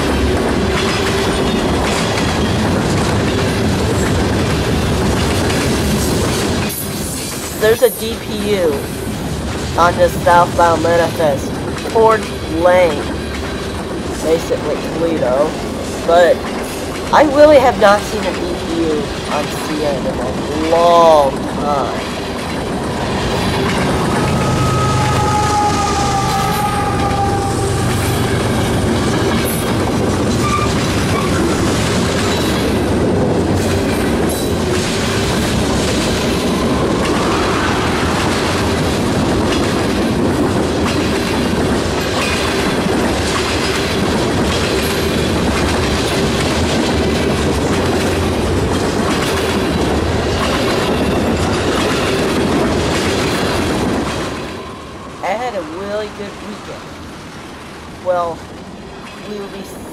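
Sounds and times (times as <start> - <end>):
steel wheels rumbling on rail: 0.0 - 59.9
high wheel squeal: 23.4 - 29.3.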